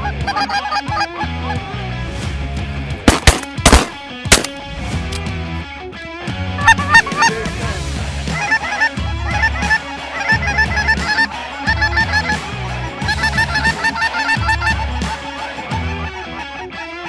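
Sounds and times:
geese cackling: 0:00.0 - 0:01.6, 0:06.6 - 0:17.0
background music: 0:00.0 - 0:17.0.

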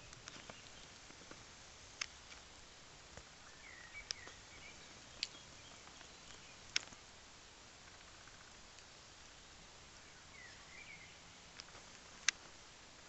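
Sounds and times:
bird chirp: 0:00.0 - 0:01.1, 0:03.4 - 0:07.0, 0:10.0 - 0:11.5.

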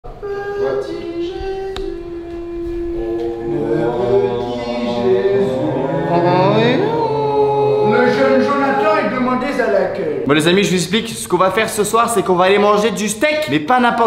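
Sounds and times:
person singing long held notes: 0:00.1 - 0:08.3.

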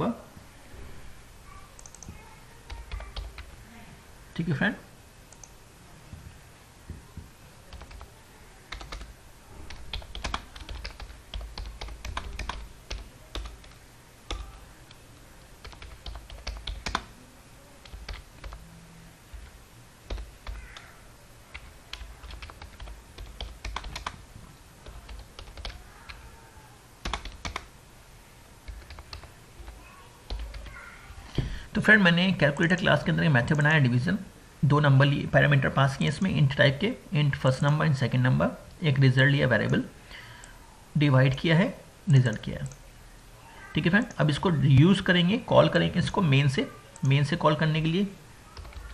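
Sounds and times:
computer keyboard typing: 0:01.8 - 0:03.6, 0:07.7 - 0:08.1, 0:08.7 - 0:15.0, 0:15.6 - 0:17.1, 0:17.8 - 0:18.6, 0:19.3 - 0:20.9, 0:21.5 - 0:24.2, 0:24.8 - 0:26.2, 0:27.0 - 0:27.7, 0:28.6 - 0:30.7, 0:48.5 - 0:48.9.

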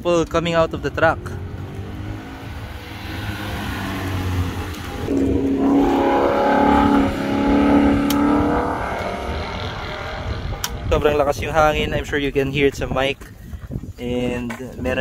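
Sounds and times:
wind rumbling on microphone: 0:00.0 - 0:15.0
car engine accelerating: 0:00.1 - 0:11.2.

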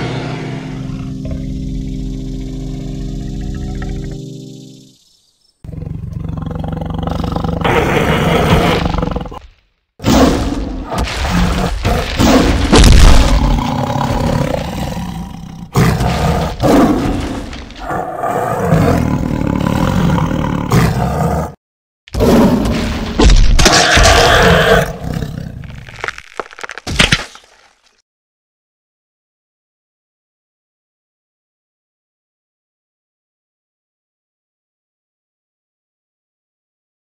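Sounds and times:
big cat growling and roaring: 0:05.7 - 0:21.6, 0:23.6 - 0:26.2.

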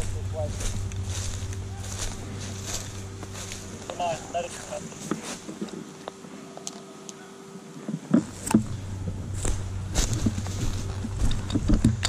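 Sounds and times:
footsteps crunching dry leaves: 0:00.0 - 0:06.0, 0:09.2 - 0:11.4
low microphone rumble: 0:00.0 - 0:06.3, 0:07.8 - 0:12.0.

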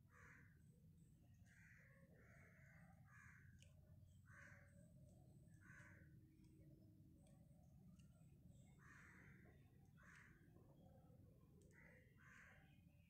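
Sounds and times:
crow cawing: 0:00.1 - 0:00.6, 0:01.5 - 0:03.6, 0:04.3 - 0:04.7, 0:05.6 - 0:06.1, 0:08.8 - 0:10.4, 0:11.8 - 0:12.7.

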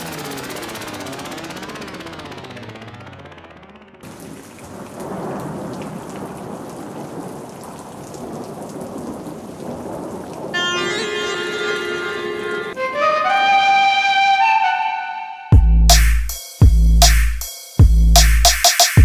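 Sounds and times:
rain and thunder: 0:04.0 - 0:12.0
melody of held notes: 0:10.5 - 0:16.0.

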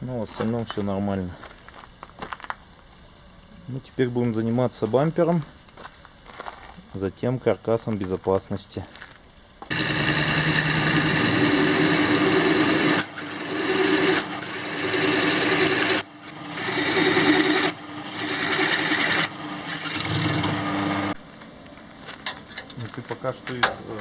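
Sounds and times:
drill press motor running: 0:09.6 - 0:21.2
drill bit cutting metal: 0:09.7 - 0:21.2.

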